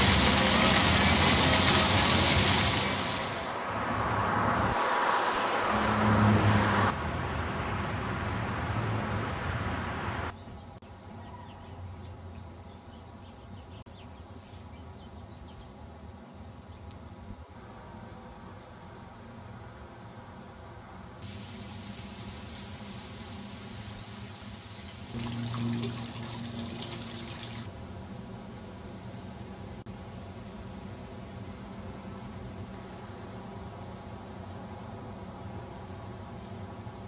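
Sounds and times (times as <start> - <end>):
fountain jets splashing: 0.0 - 3.6, 21.2 - 27.7
traffic rumble: 0.0 - 10.4, 21.2 - 27.7.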